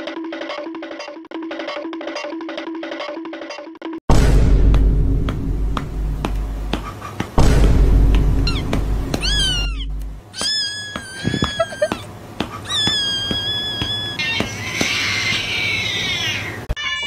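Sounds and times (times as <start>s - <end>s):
kitten meowing: 8.4s - 17.0s.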